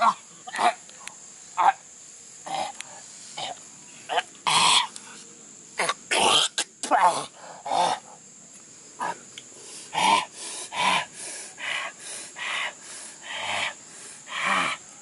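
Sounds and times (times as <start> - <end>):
man panting and gasping: 7.2 - 8.2, 9.6 - 14.9.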